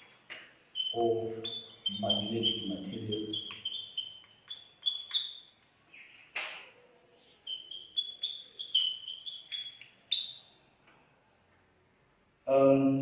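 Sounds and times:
chalk squeaking on blackboard: 0.0 - 5.6, 7.3 - 10.6.

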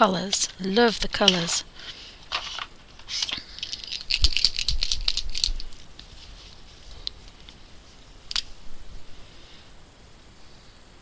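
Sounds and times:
art supplies clicking and rattling: 0.2 - 1.6.

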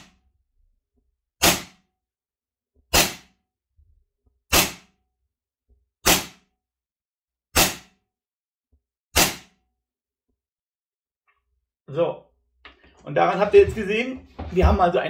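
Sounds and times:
airsoft pistol shots: 1.4 - 1.8, 2.9 - 3.4, 4.5 - 4.9, 6.0 - 6.5, 7.6 - 8.0, 9.2 - 9.6.

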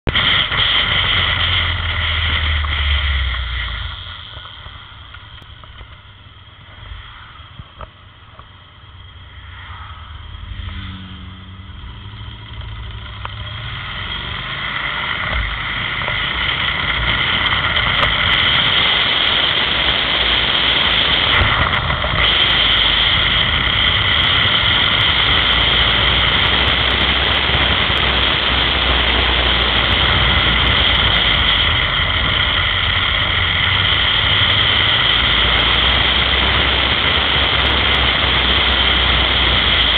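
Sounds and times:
motorcycle engine: 0.0 - 39.9
wind rushing: 13.4 - 39.9.

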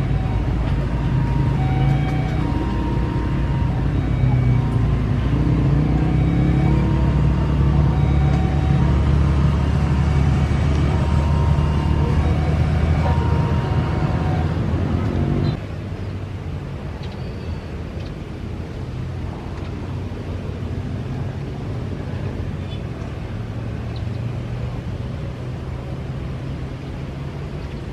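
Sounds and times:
landing jet rumble: 0.0 - 15.6
jet airliner engines rumbling: 0.0 - 24.9.

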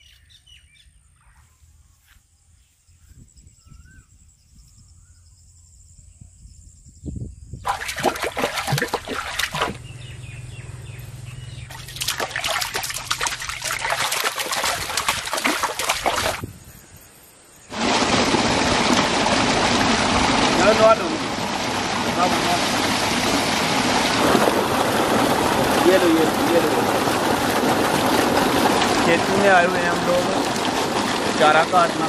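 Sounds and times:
water gushing from a pipe: 7.6 - 9.8, 11.7 - 16.4, 17.7 - 32.0
feet splashing in water: 7.7 - 9.9, 11.6 - 16.4, 17.7 - 32.0.

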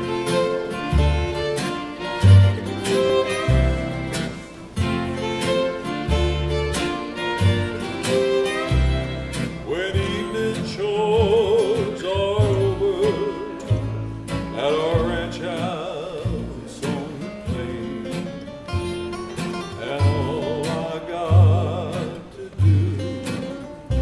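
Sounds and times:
acoustic guitars strumming: 0.0 - 24.0
fiddles playing: 0.0 - 24.0
upright bass: 0.0 - 24.0.

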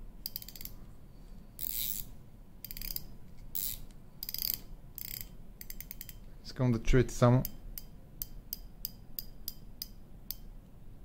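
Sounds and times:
fishing reel drag clicking: 1.6 - 2.1, 2.7 - 3.0, 3.6 - 6.2.

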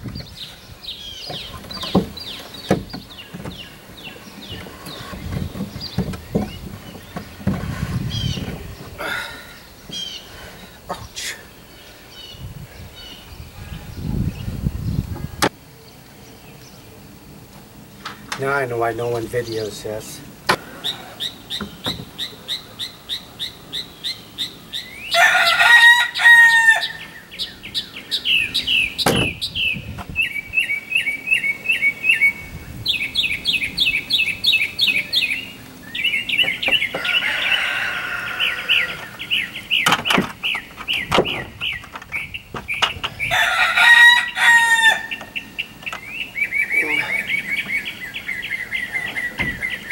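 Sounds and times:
drawn-out bird call: 0.0 - 15.5, 18.0 - 49.9
birds chirping: 0.0 - 49.9
sharp knocks: 29.0 - 29.4.

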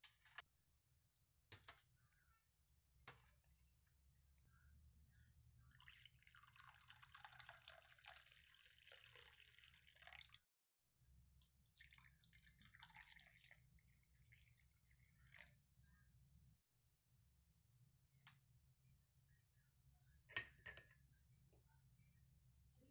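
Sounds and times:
tea pouring into cup: 5.7 - 10.4, 11.7 - 15.6.

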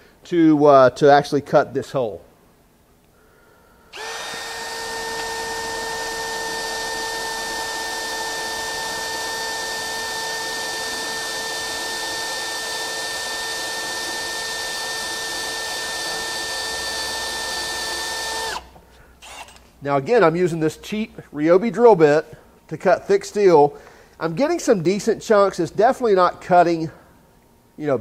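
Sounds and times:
cordless drill motor whine: 3.9 - 19.6
drill bit cutting steel: 4.0 - 19.6.

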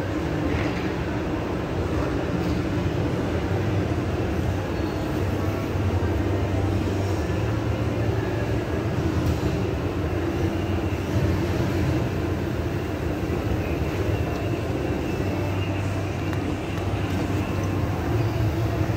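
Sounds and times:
escalator droning: 0.0 - 18.9.

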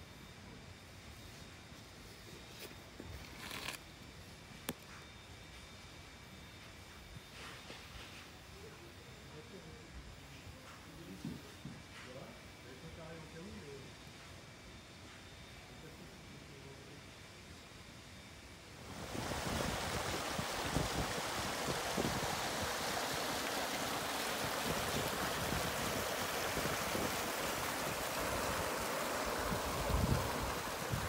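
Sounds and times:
water rushing over rocks: 18.9 - 31.0.

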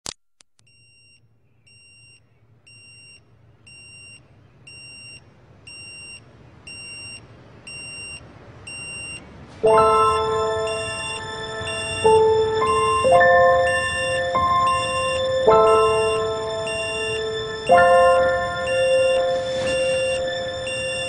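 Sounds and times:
electronic alarm beeping: 0.9 - 21.0
loud music with held chords: 9.7 - 21.0.

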